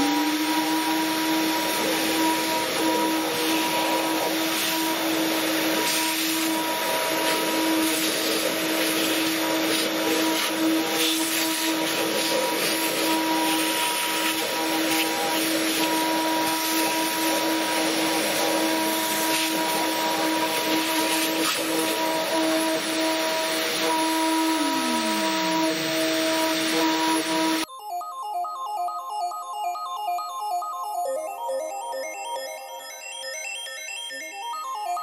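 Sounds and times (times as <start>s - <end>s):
router spindle whining: 0.0s - 27.7s.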